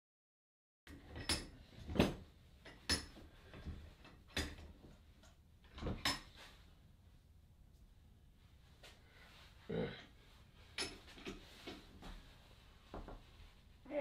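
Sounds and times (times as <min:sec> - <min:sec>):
metallic clanks and knocks of tools: 0:00.9 - 0:06.4, 0:10.6 - 0:11.9.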